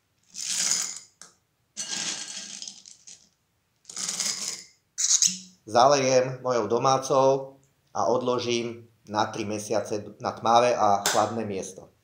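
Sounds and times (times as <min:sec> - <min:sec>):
stones rattling into glass jar: 0:00.3 - 0:01.2, 0:01.8 - 0:03.3.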